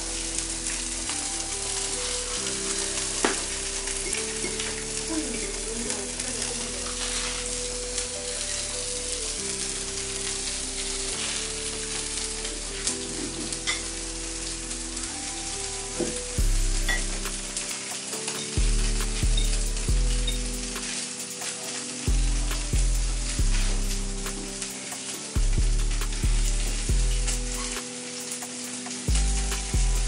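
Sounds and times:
food sizzling in a frying pan: 0.0s - 30.0s
music with held notes: 0.0s - 30.0s
deep bass notes: 16.3s - 17.6s, 18.6s - 20.9s, 22.1s - 24.6s, 25.4s - 27.8s, 29.1s - 30.0s.

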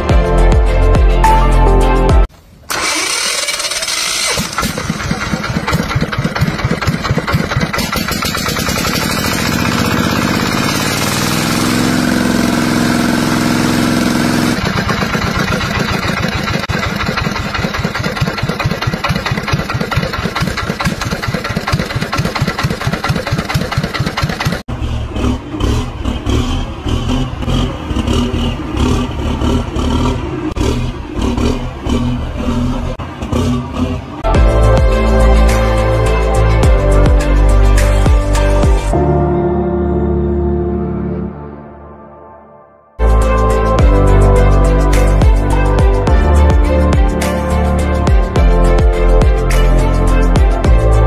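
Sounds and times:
background music: 0.0s - 2.3s, 34.3s - 51.0s
small engine running: 2.7s - 32.0s.

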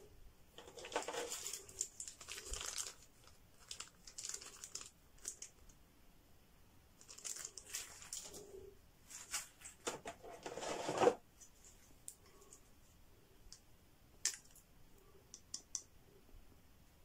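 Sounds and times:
plastic wrapping crinkling: 0.6s - 5.7s, 7.0s - 9.8s.

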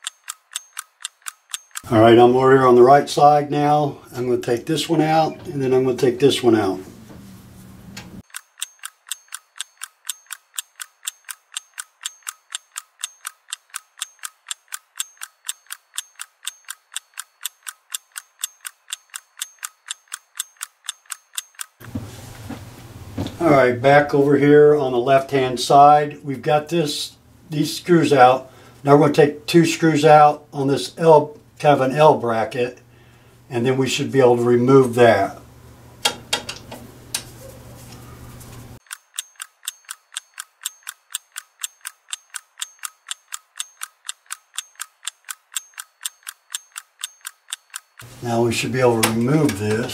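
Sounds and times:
sharp mechanical clicking: 0.0s - 1.9s, 8.2s - 21.8s, 38.8s - 48.1s.

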